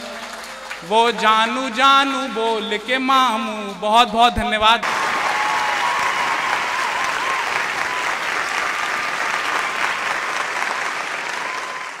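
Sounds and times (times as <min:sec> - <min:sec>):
audience applauding: 0:00.0 - 0:00.9, 0:04.8 - 0:12.0.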